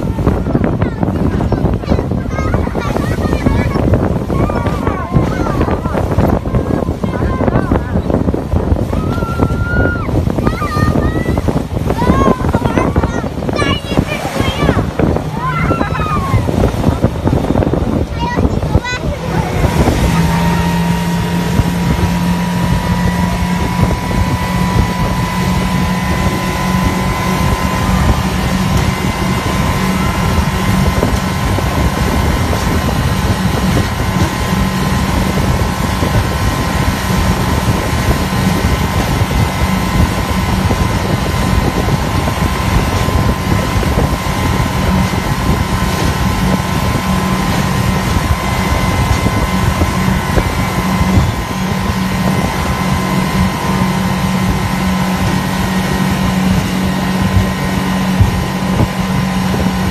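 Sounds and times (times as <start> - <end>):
boat wake rushing: 0.0 - 59.9
outboard motor running: 0.0 - 59.9
wind on microphone: 0.0 - 59.9.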